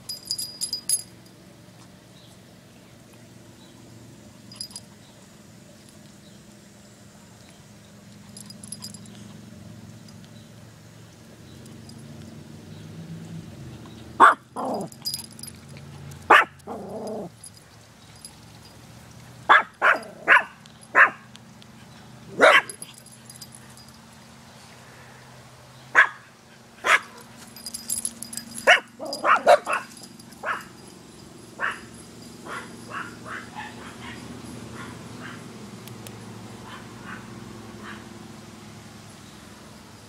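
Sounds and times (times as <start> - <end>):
dog barking loudly: 14.2 - 14.9, 16.3 - 17.3, 19.5 - 21.3, 22.3 - 22.8, 25.9 - 27.3, 28.6 - 30.8, 31.6 - 31.9, 32.5 - 35.4.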